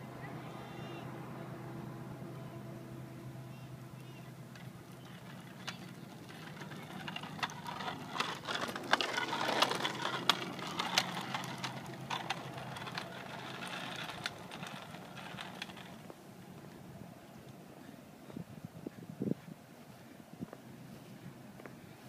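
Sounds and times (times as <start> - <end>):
bicycle rolling over concrete: 4.0 - 17.6
bicycle clicks and rattles: 4.5 - 16.2.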